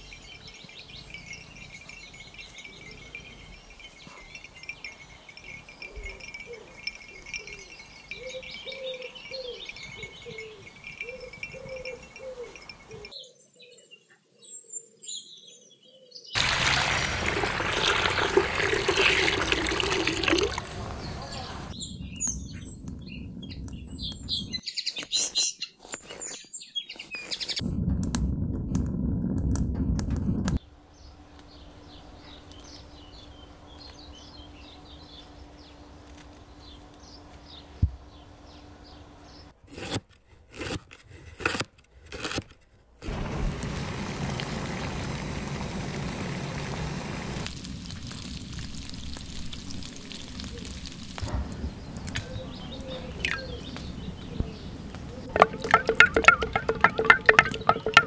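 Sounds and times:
small birds chirping: 0:00.0 - 0:16.4, 0:20.1 - 0:27.6, 0:30.6 - 0:39.6, 0:48.1 - 0:58.0
steady hiss: 0:43.0 - 0:52.2.

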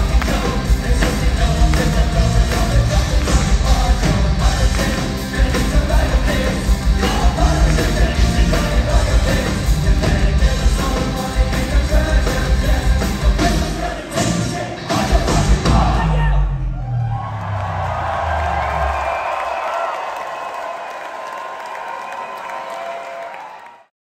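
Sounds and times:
voices singing: 0:00.0 - 0:16.2
live heavy metal band: 0:00.0 - 0:16.5.

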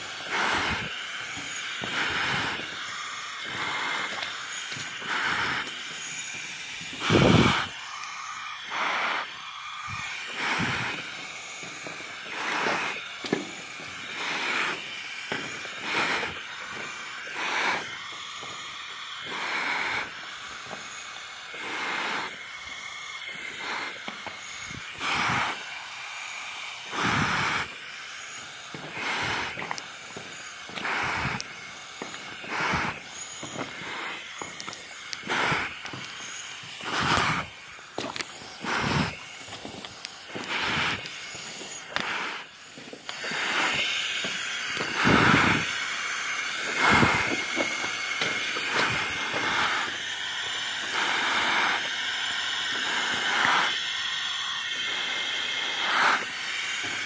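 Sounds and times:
person breathing: 0:00.0 - 0:20.9, 0:21.5 - 0:22.5, 0:23.3 - 0:25.8, 0:26.8 - 0:45.8.

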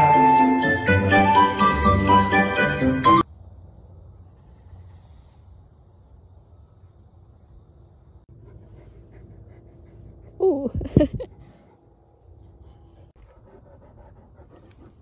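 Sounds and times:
crickets chirring: 0:03.2 - 0:15.0.

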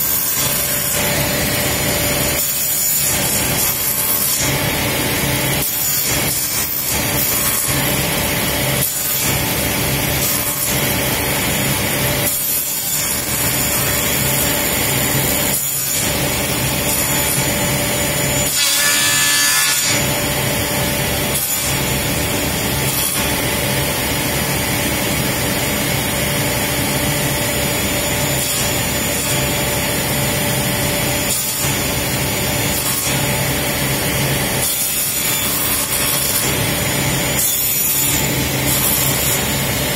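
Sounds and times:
table saw cutting plywood: 0:00.0 - 0:39.9.

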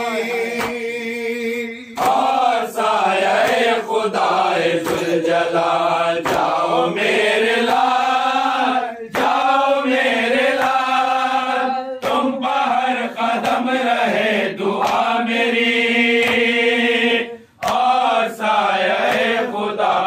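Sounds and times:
men chanting in unison: 0:00.0 - 0:20.0
hands slapping chests: 0:00.5 - 0:00.8, 0:01.9 - 0:13.9, 0:14.8 - 0:15.3, 0:16.2 - 0:16.6, 0:17.6 - 0:19.9.

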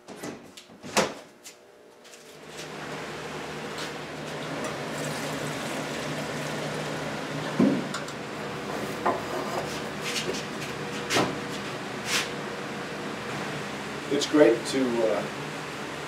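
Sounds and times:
box fan humming: 0:00.0 - 0:16.0.

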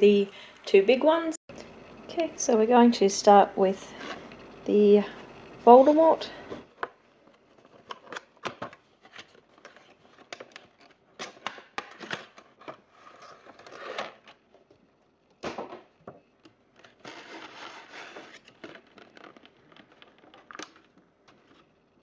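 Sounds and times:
plastic insert crinkling and scraping: 0:06.6 - 0:14.9, 0:16.4 - 0:22.0.

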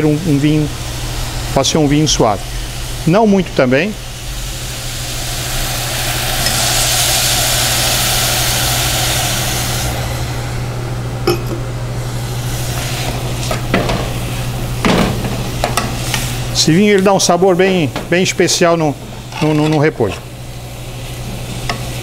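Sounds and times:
steady low hum: 0:00.0 - 0:22.0
wine sizzling in a hot saucepan: 0:00.4 - 0:22.0.

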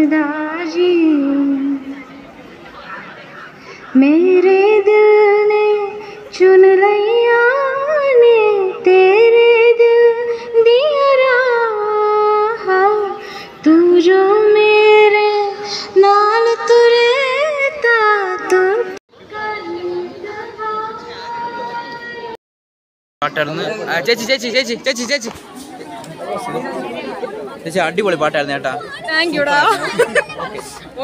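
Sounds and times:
woman singing through pa: 0:04.0 - 0:21.1.

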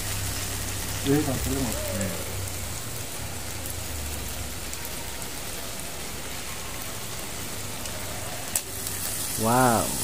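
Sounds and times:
meat and onions sizzling in oil: 0:00.0 - 0:10.0.

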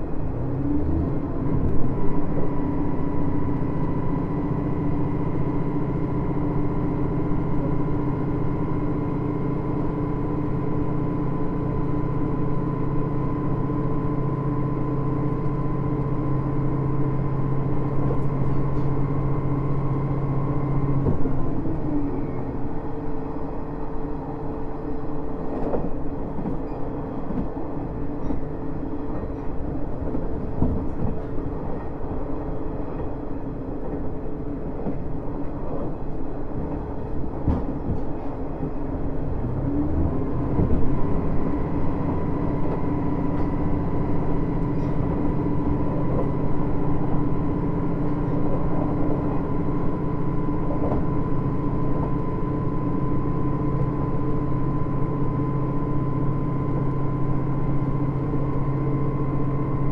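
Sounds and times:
diesel railcar engine droning: 0:00.0 - 0:59.9
wheel and rail noise: 0:12.2 - 0:59.9
rail joint clicks: 0:15.3 - 0:23.0, 0:24.2 - 0:39.7, 0:40.3 - 0:53.0.

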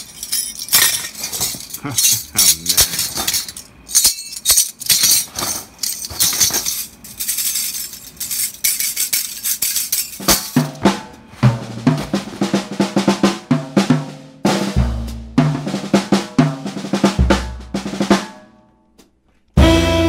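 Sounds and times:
jazz drum kit playing: 0:10.2 - 0:18.4, 0:19.6 - 0:20.0.

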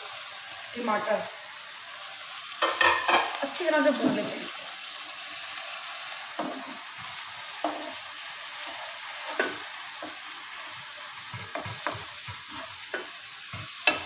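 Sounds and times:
food sizzling in a frying pan: 0:00.0 - 0:14.0
spatula scraping and tapping pan: 0:02.6 - 0:04.3, 0:06.3 - 0:14.0.

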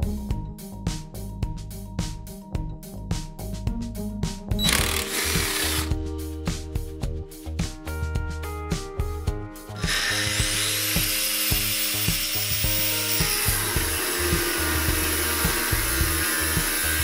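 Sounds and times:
angle grinder cutting metal: 0:04.6 - 0:05.9, 0:09.8 - 0:17.0.

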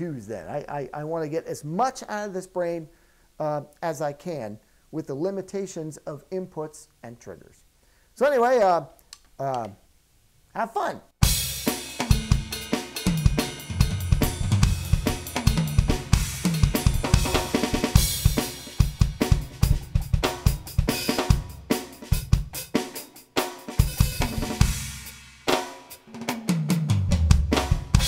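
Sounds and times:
electronic drum kit groove: 0:11.2 - 0:28.0.

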